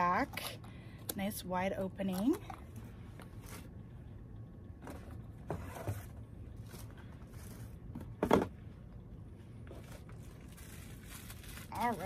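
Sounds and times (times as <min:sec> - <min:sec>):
faint rustling of boxes: 0:04.8 - 0:12.0.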